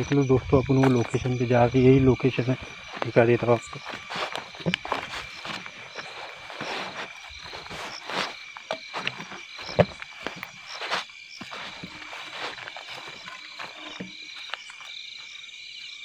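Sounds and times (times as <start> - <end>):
footsteps through grass: 0.0 - 15.6
frogs calling: 0.0 - 16.0
insects calling: 0.0 - 16.0.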